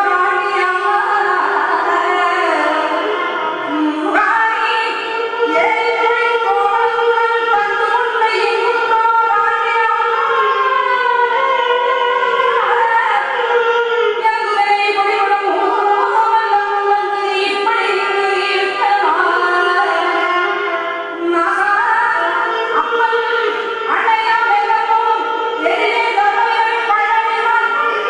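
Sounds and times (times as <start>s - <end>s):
violin accompaniment: 0.0s - 17.0s
woman singing: 0.0s - 28.0s.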